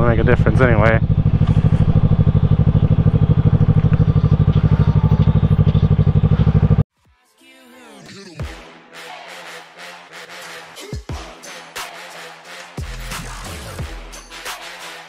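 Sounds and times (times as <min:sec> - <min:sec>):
motorcycle engine pulsing: 0:00.0 - 0:06.8.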